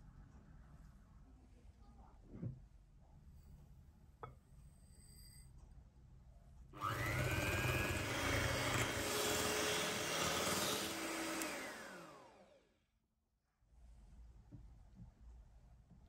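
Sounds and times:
electric hand mixer whining: 6.8 - 12.7.

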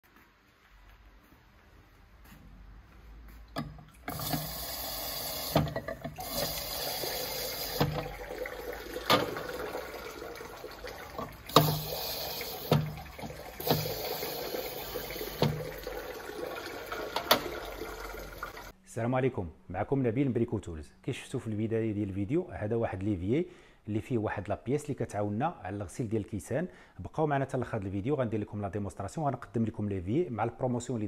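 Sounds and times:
water spraying from glass rinser: 3.7 - 18.7.

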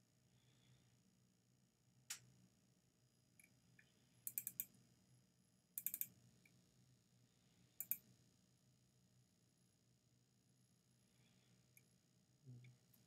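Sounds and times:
computer mouse clicks: 4.3 - 4.7, 5.8 - 6.6, 7.8 - 8.1.

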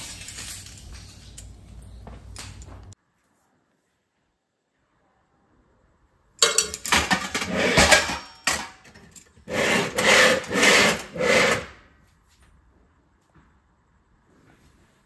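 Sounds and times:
wire stand scraping in drawer: 6.8 - 11.8.

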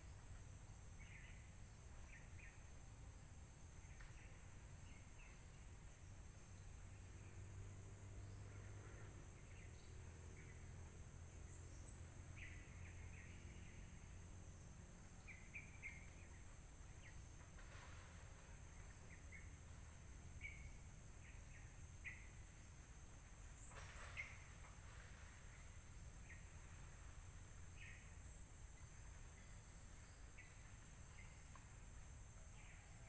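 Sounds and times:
high insect drone: 0.0 - 33.0.

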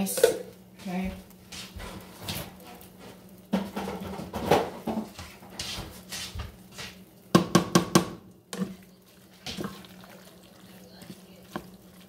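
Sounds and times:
wooden spoon knocking on saucepan: 3.5 - 5.2, 7.3 - 8.8.

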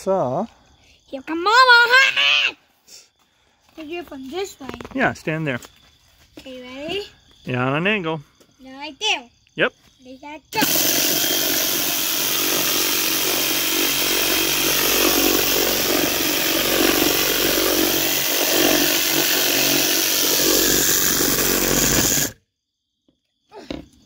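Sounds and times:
reciprocating saw cutting wood: 10.6 - 22.4.

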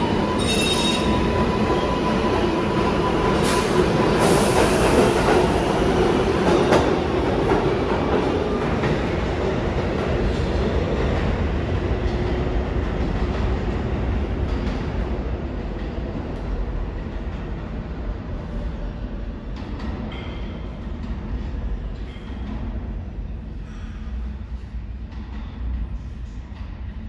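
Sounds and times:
subway train rumbling: 0.0 - 27.0.

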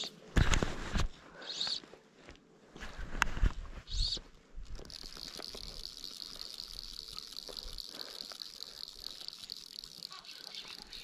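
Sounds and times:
steady high hiss: 3.3 - 11.0.

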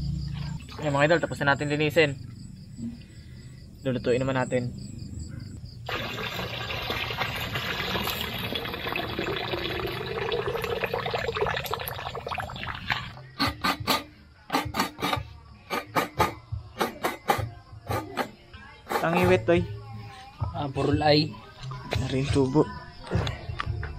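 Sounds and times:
water splashing in a metal basin: 5.8 - 13.2.

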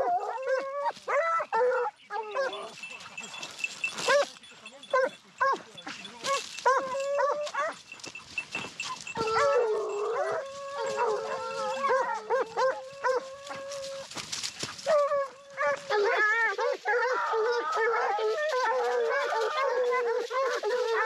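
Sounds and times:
hounds yelping and baying: 0.0 - 21.0
dog long howl: 9.1 - 14.1, 14.9 - 21.0.

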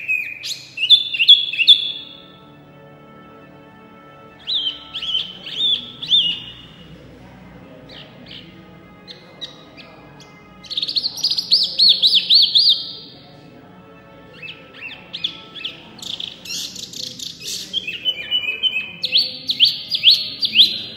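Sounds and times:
bird singing whistled notes: 0.0 - 2.2, 4.4 - 6.8, 7.9 - 13.1, 14.3 - 20.9.

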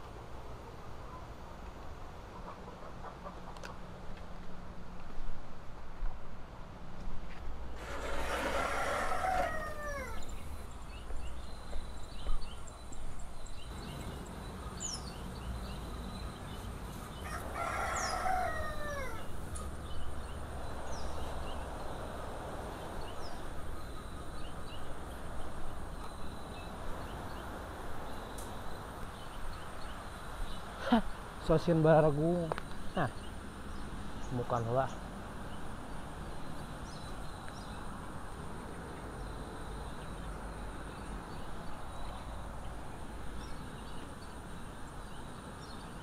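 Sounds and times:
small birds chirping: 7.6 - 46.0
rooster crowing: 8.0 - 10.5, 17.2 - 19.4.

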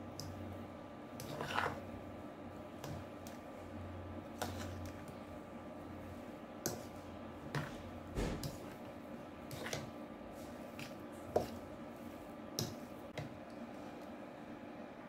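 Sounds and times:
fork mixing soft mash: 0.0 - 14.4
fork scraping a bowl: 1.2 - 1.9, 4.3 - 5.1, 9.5 - 11.6.

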